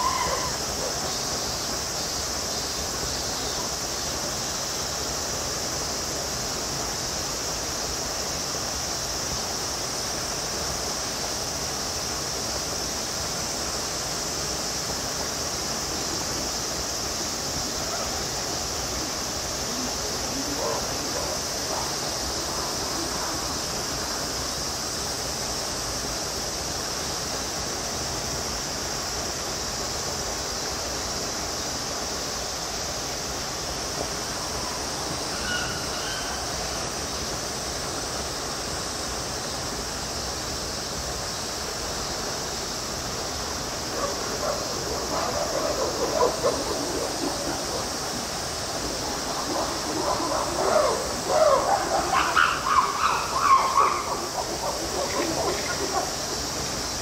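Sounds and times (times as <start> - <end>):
high-pitched hiss: 0.0 - 57.0.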